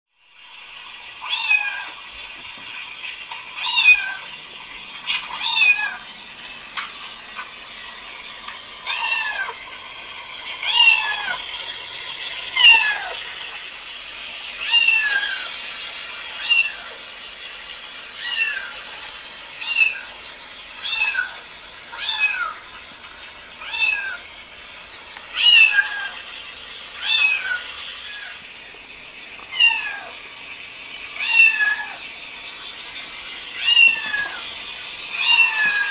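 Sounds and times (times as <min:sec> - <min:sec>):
cat meows from laptop speakers: 0:01.2 - 0:01.9, 0:03.6 - 0:04.2, 0:05.2 - 0:06.0, 0:08.8 - 0:09.6, 0:14.6 - 0:15.5, 0:16.4 - 0:16.9, 0:18.2 - 0:18.8, 0:25.4 - 0:26.2, 0:27.0 - 0:28.4, 0:29.5 - 0:30.1, 0:31.2 - 0:32.0, 0:33.6 - 0:34.4, 0:35.1 - 0:35.9.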